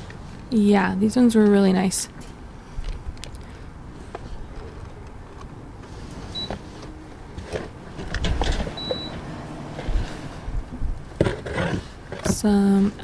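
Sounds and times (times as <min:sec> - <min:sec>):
wind rumble on microphone: 0:09.8 - 0:11.2.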